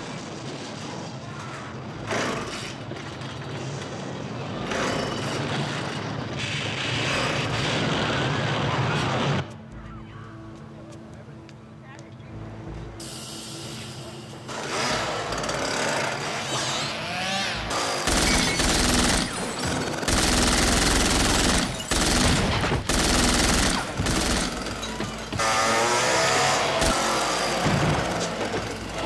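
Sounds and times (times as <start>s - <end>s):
submachine gun bursts: 18.0s - 24.9s.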